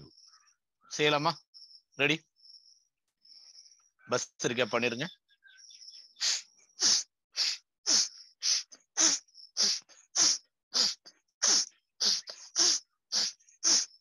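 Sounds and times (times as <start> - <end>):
forceful nasal exhalations: 6.2 - 14.0.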